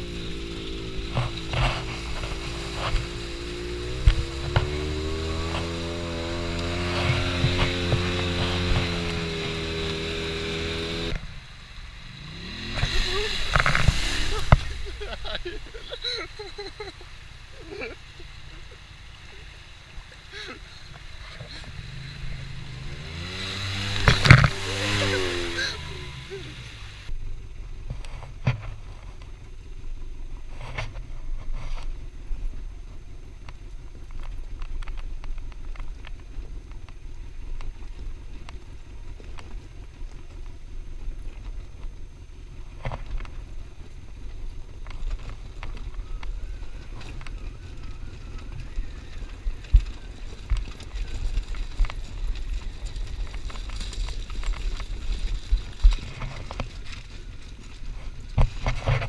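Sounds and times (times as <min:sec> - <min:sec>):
knocks and thumps from rough ground: 0:00.0 - 0:11.3, 0:12.6 - 0:17.0, 0:20.9 - 0:26.6, 0:27.8 - 0:29.5, 0:37.6 - 0:59.0
off-road vehicle engine running: 0:00.0 - 0:59.0.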